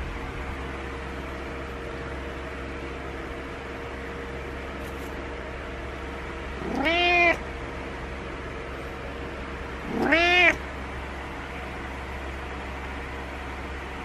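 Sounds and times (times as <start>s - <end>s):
cat meowing: 6.6s - 7.4s, 9.8s - 10.6s.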